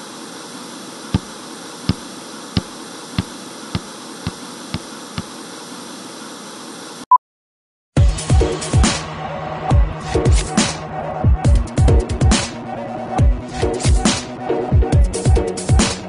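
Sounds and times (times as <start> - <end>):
television static hiss: 0.0 - 7.1.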